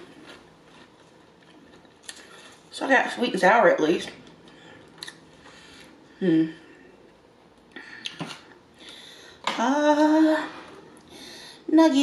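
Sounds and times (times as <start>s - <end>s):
food packaging rustling: 0.0s - 2.8s
woman humming: 6.1s - 6.8s.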